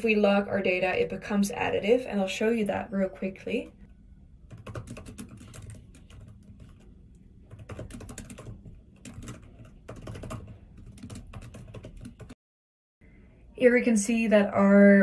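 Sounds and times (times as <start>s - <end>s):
typing on computer keyboard: 4.5s - 12.4s.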